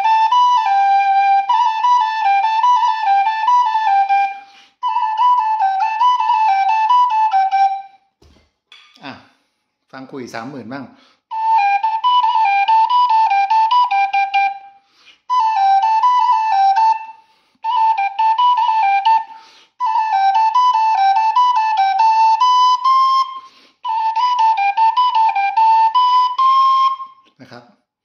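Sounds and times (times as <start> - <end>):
wooden flute melody: 0.0 - 8.2, 11.3 - 27.4.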